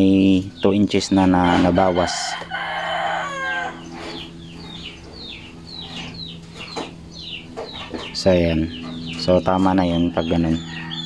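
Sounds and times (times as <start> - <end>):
chickens clucking: 0.0 - 11.0
rooster crowing: 1.1 - 4.4, 10.6 - 11.0.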